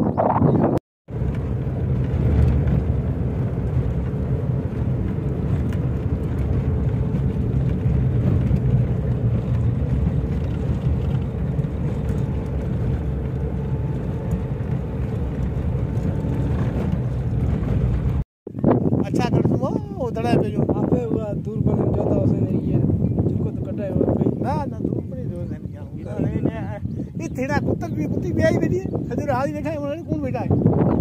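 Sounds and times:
vehicle engine and tyre rumble: 0.4 - 31.0.

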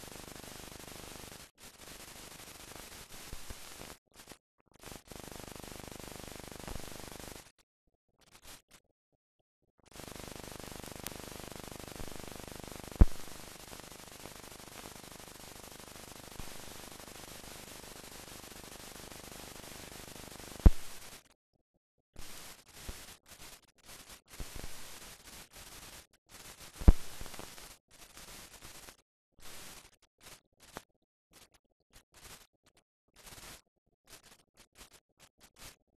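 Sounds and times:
film soundtrack hiss: 0.0 - 7.5, 9.9 - 21.2
sharp pops: 20.6 - 21.0.

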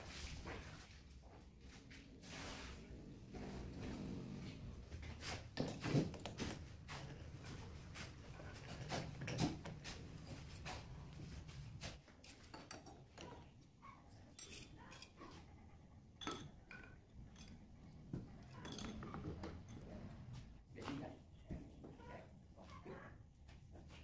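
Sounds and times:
metal tools clinking on chuck: 14.2 - 15.2, 16.2 - 19.9.

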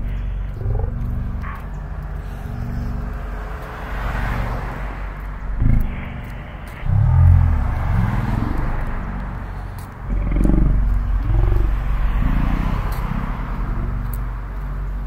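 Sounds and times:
car traffic passing: 0.0 - 15.0
low uneven rumble: 0.0 - 15.0.

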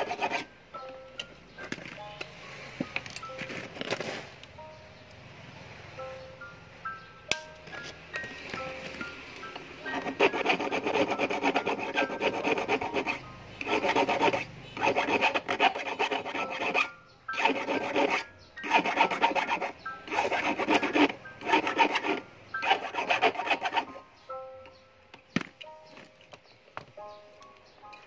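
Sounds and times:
hand file rasping on steel wire: 0.0 - 0.5, 9.9 - 24.0.

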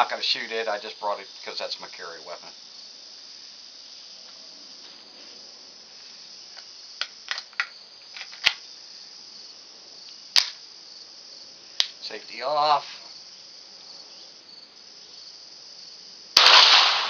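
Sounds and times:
insects chirring: 0.0 - 17.0
pistol clicks and snaps: 6.6 - 8.6, 10.4 - 10.6.

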